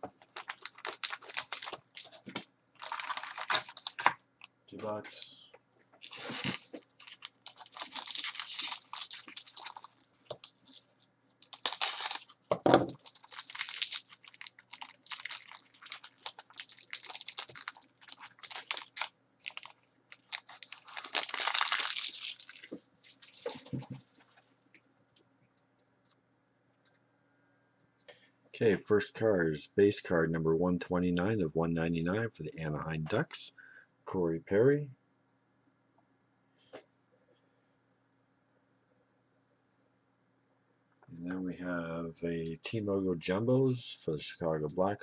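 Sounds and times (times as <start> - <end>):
foil wrapper tearing and crinkling: 0.2 - 2.2, 2.8 - 4.2, 6.0 - 23.6.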